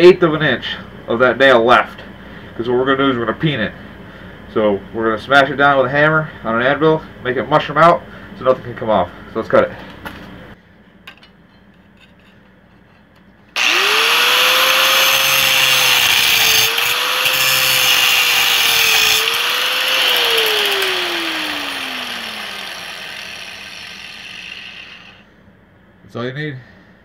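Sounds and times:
angle grinder cutting a nail: 13.6 - 25.2.

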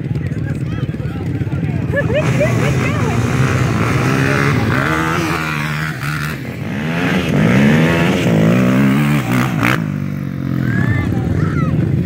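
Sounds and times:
atv engines idling and revving: 0.0 - 12.0
quad accelerating away: 0.0 - 12.0.

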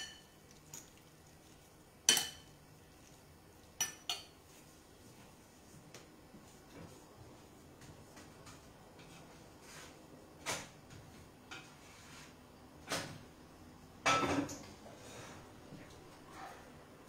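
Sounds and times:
kitchenware knocking and clattering: 14.0 - 14.6.

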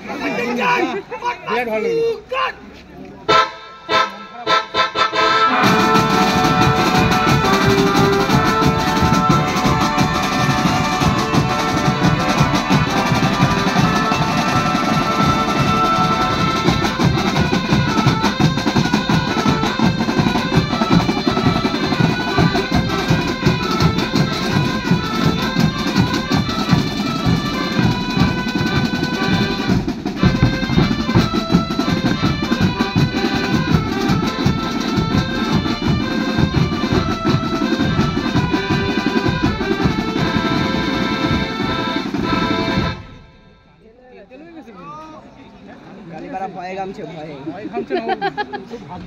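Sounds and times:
wind instruments melody: 3.2 - 43.9
bass and snare drums beating: 5.6 - 43.2.

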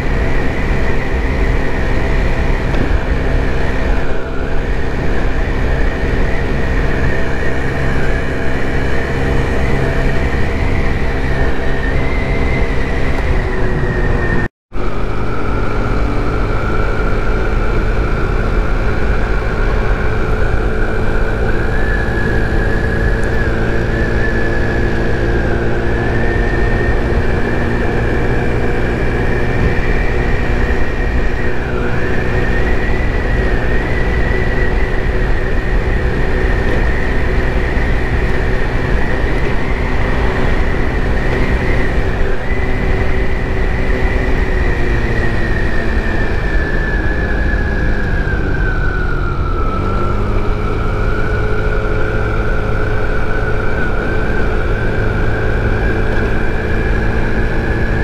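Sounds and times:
high engine whine: 0.0 - 58.0
scooter engine running: 0.0 - 58.0
wind rushing over microphone: 0.0 - 58.0.

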